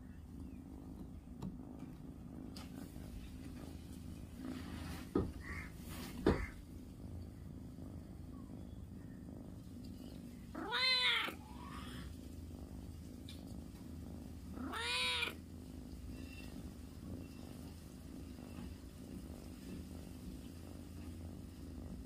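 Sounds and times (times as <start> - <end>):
cat meowing: 10.6 - 12.0, 14.6 - 15.4.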